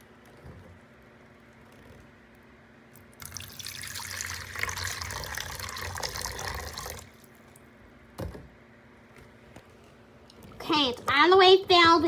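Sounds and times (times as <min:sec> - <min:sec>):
water pouring into pool: 0:03.2 - 0:07.2.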